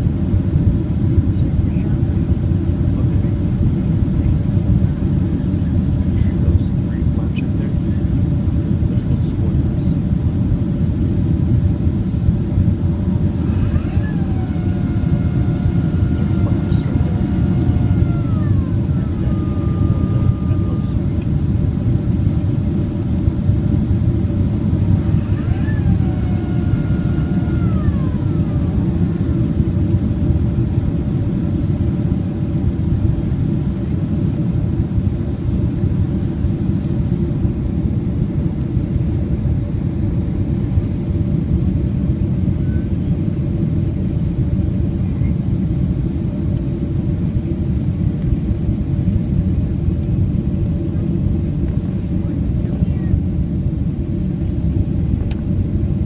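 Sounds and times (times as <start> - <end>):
airplane cabin rumble: 0.0 - 56.0
faint whine gliding down: 12.6 - 32.3.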